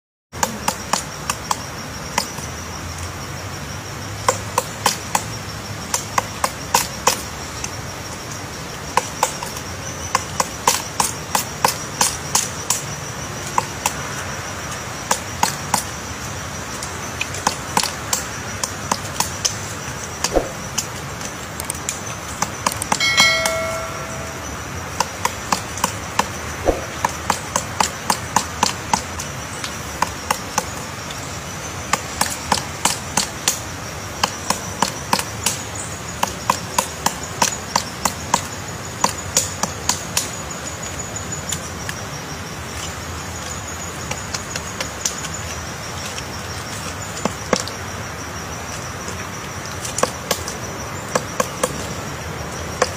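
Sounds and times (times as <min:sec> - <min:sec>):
woodpecker striking wood: 0:17.2 - 0:30.8, 0:31.9 - 0:33.6, 0:34.2 - 0:40.4
bright chime: 0:23.0 - 0:24.8.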